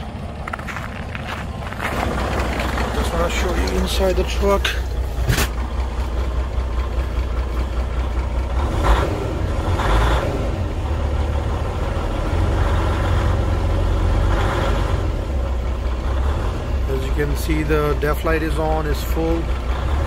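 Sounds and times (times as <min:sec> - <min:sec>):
truck diesel engine idling: 0:00.0 - 0:20.0.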